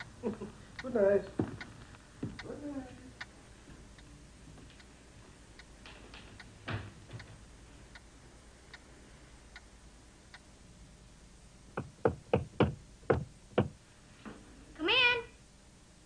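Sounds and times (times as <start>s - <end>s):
clock ticking: 0.0s - 1.0s, 11.7s - 13.8s
loud knocks: 11.8s - 13.8s.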